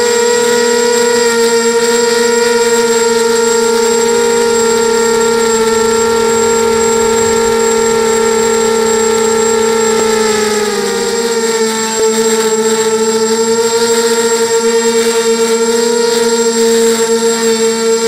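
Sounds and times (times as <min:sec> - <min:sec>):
drone motors whining: 0:00.8 - 0:14.4.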